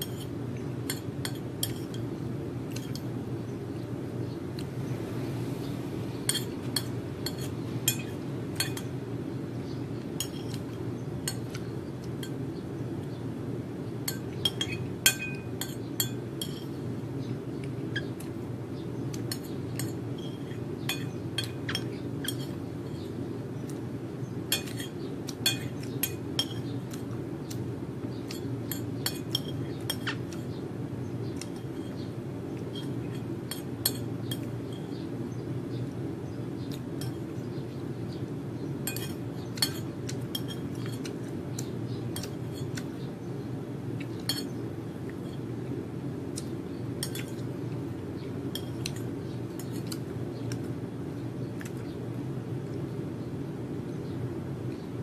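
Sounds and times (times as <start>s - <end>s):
low steady hum: 0.0s - 55.0s
cutlery clinking on a ceramic plate: 0.9s - 2.1s, 6.3s - 8.9s, 10.2s - 10.7s, 14.1s - 16.7s, 19.3s - 22.6s, 24.5s - 26.7s, 28.3s - 30.4s, 32.7s - 35.0s, 38.9s - 41.1s, 44.2s - 44.5s, 47.0s - 47.4s.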